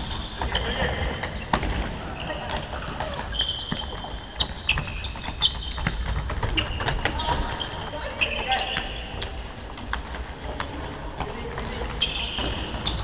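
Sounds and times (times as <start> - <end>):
ball kicked and bouncing: 0.0 - 13.0
sneakers squeaking on wooden floor: 0.0 - 13.0
players calling out: 0.2 - 5.8.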